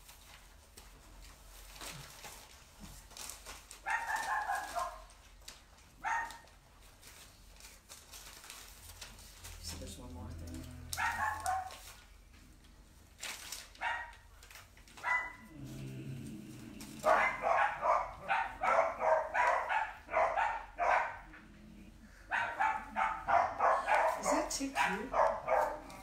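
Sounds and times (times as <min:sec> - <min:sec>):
dog barking: 0:03.8 - 0:05.1, 0:06.0 - 0:06.4, 0:10.9 - 0:11.8, 0:13.8 - 0:14.2, 0:15.0 - 0:15.5, 0:17.0 - 0:21.3, 0:22.3 - 0:26.0.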